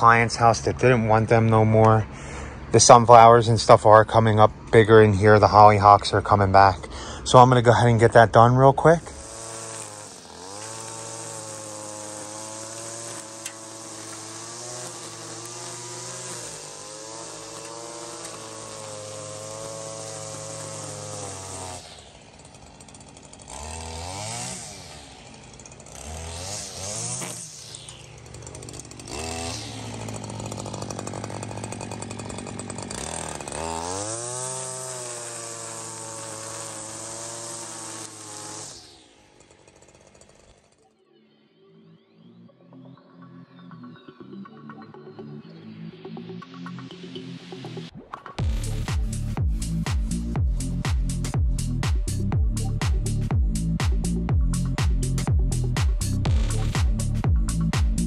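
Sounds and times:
string trimmer cutting grass: 0:00.0 - 0:41.0, 0:47.4 - 0:58.0.

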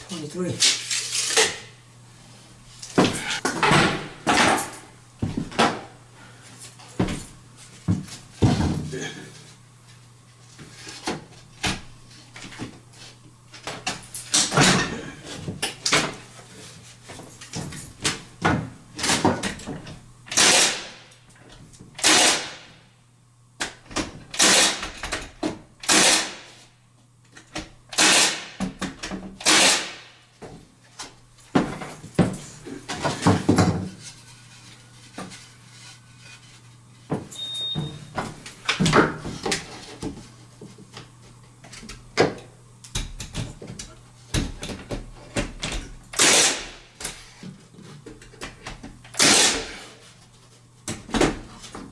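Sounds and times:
nail gun snapping: 0:20.3 - 0:21.0, 0:22.0 - 0:22.6, 0:24.3 - 0:25.0, 0:25.8 - 0:26.5, 0:27.9 - 0:28.6, 0:29.4 - 0:30.0, 0:46.1 - 0:46.8, 0:49.1 - 0:49.7.

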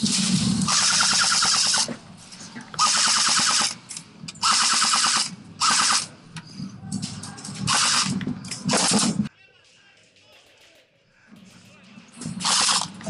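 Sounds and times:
airsoft gun firing full auto: 0:02.8 - 0:03.8, 0:04.4 - 0:06.1, 0:12.4 - 0:12.9.

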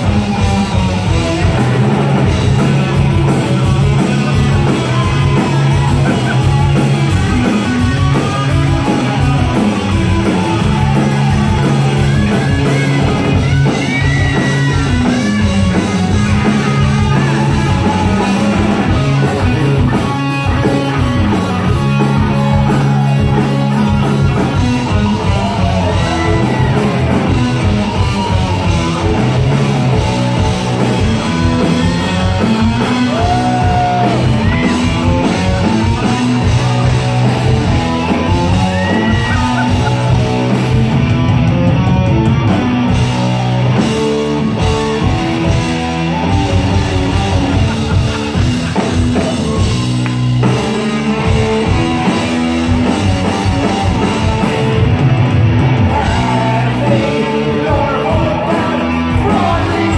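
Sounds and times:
distorted electric guitar riff: 0:00.0 - 0:59.9
heavy rock band playing: 0:00.0 - 0:59.9
person singing: 0:55.8 - 0:59.9.

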